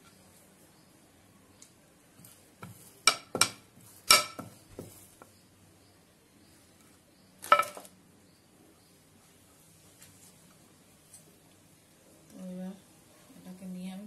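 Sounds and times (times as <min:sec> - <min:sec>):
rolling pin clinking on metal board: 0:03.1 - 0:04.6.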